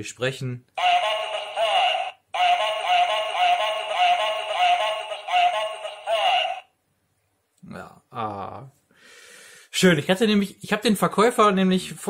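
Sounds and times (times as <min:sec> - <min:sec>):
toy electronic voice speaking: 0:00.8 - 0:06.7.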